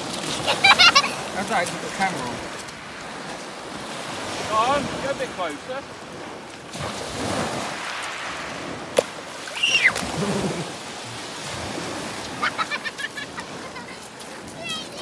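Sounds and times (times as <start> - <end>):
waves washing on shingle: 0.0 - 15.0
short high calls: 9.5 - 10.0.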